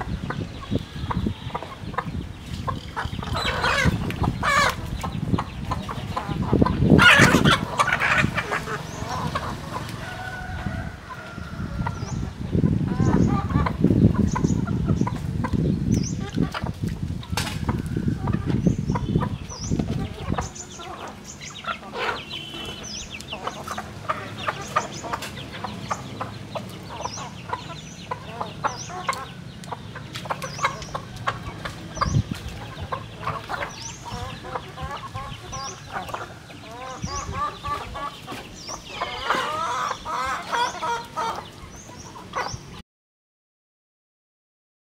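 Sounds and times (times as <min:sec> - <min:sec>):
chickens clucking: 0:00.0 - 0:42.8.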